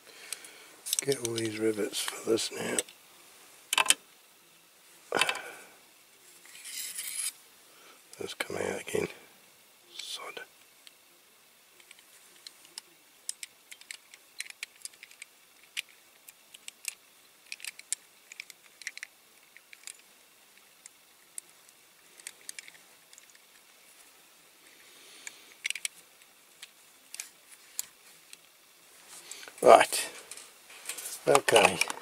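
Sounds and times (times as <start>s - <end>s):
metal tool scrape: 6.5s - 7.4s.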